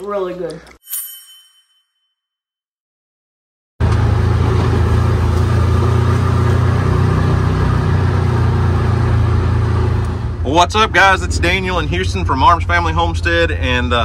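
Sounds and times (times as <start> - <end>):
tyre and chassis noise: 3.8 - 14.0
vehicle engine running: 3.8 - 14.0.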